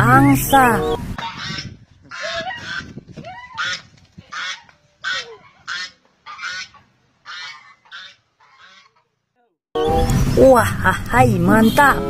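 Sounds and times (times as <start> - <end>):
geese honking: 0.0 - 2.9, 3.6 - 9.1.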